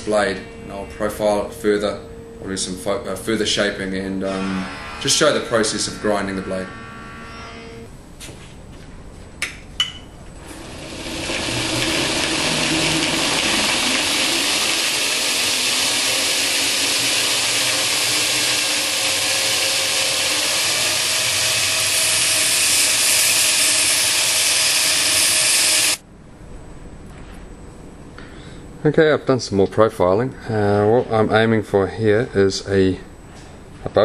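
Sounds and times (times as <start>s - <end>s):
belt grinder grinding steel: 4.2s - 7.9s, 10.5s - 26.0s.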